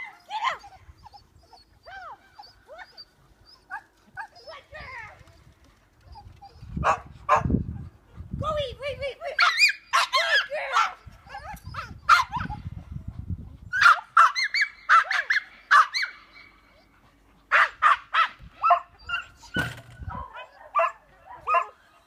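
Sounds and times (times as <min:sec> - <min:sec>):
small dog barking: 0:17.5 - 0:19.3, 0:20.1 - 0:21.8.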